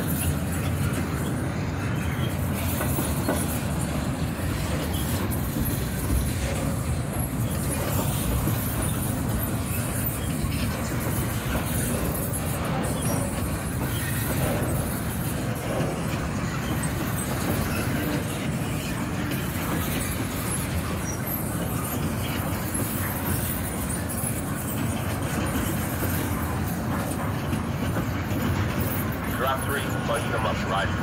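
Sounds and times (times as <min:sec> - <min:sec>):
freight train rolling past: 0:00.0 - 0:31.0.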